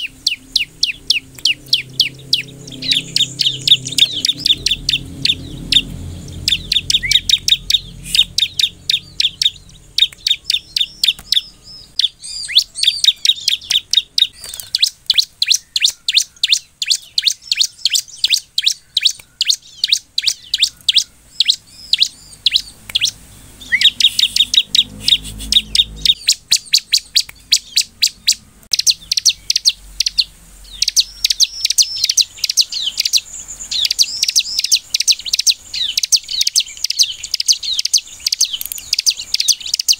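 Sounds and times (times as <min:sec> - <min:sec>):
bird chirping rapidly: 0:00.0 - 0:39.9.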